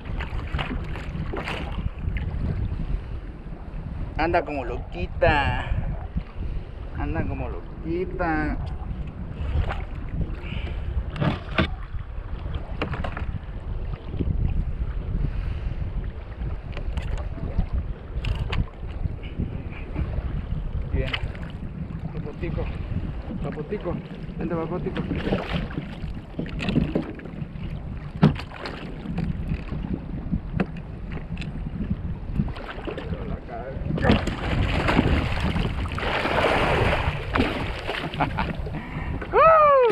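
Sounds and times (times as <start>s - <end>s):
water splashing and sloshing: 0.0s - 4.2s, 8.4s - 39.9s
wind buffeting microphone: 0.0s - 39.9s
knocks on kayak hull: 28.1s - 29.3s.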